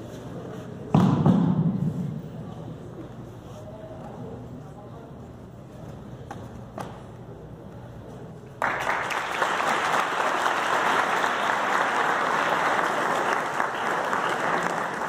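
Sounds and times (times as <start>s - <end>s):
audience applauding: 8.6s - 15.0s.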